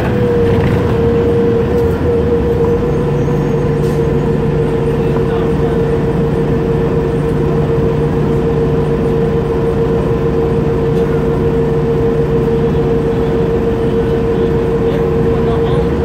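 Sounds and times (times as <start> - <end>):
bus engine idling: 0.0 - 16.0
constant mid-pitched whine: 0.0 - 16.0.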